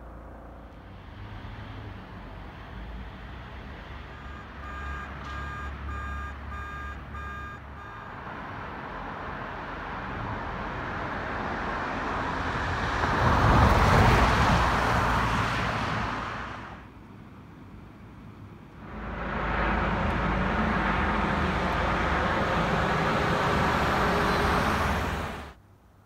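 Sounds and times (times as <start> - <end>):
short electronic beeps: 4.1 - 8.1
car passing by: 8.2 - 16.9, 18.8 - 25.6.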